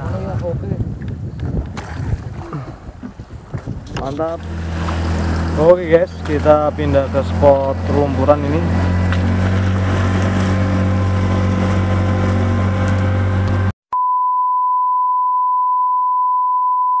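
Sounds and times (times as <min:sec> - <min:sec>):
boat motor running: 0:02.1 - 0:13.7
steady test-tone beep: 0:14.0 - 0:17.0.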